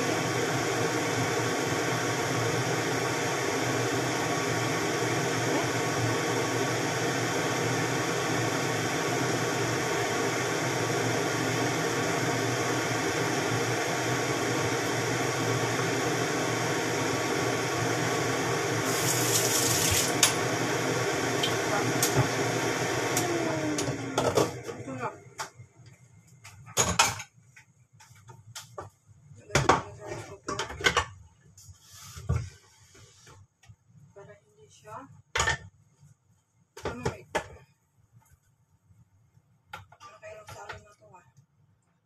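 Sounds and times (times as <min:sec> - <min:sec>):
noodles sizzling in a frying pan: 0:00.0 - 0:22.8.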